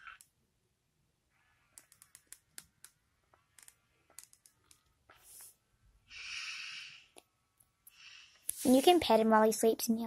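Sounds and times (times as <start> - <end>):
soft hiss: 7.8 - 9.3.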